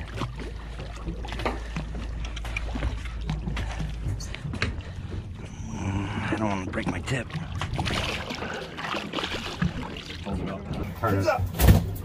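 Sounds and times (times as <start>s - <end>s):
steady low rumble: 0.0s - 8.2s.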